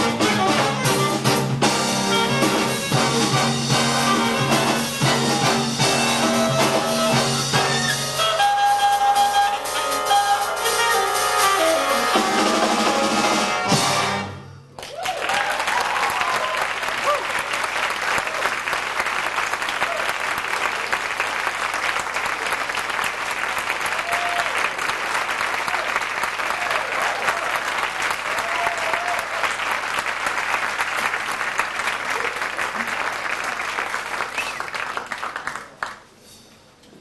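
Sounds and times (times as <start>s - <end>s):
audience applauding: 14.8s - 36.2s.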